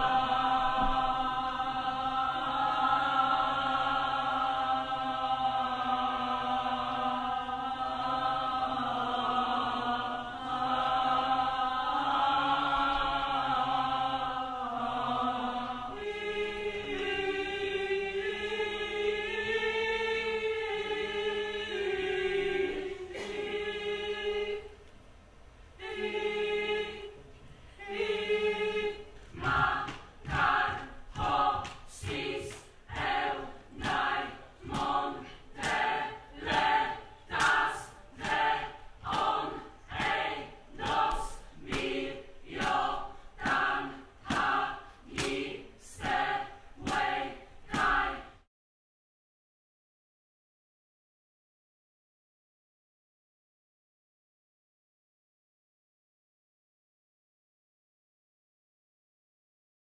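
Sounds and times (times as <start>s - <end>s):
group of voices singing: 0.0s - 24.8s, 25.8s - 48.5s.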